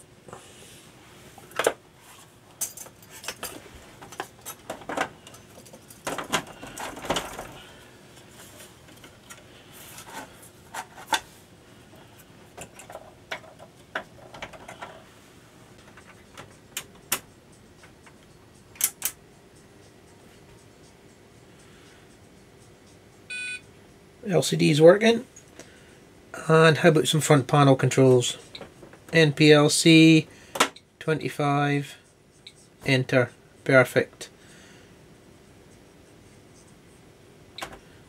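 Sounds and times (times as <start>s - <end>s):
faint steady hum: 0.0s - 38.0s
clicks and knocks of parts: 2.6s - 7.6s, 12.5s - 15.0s, 15.8s - 19.2s.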